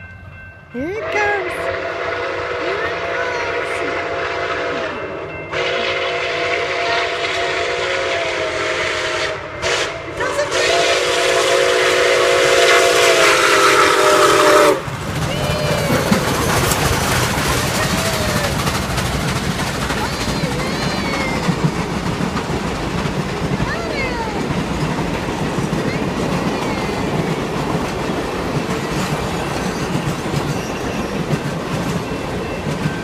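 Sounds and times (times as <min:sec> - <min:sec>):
train rumbling past: 0:00.0 - 0:33.0
steam whistle blasts: 0:01.0 - 0:14.9.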